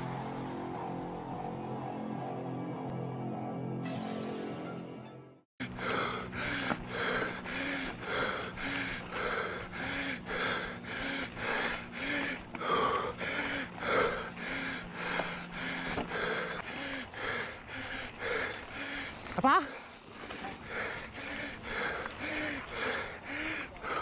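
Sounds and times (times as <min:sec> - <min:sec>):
person panting: 0:05.6 - 0:24.0.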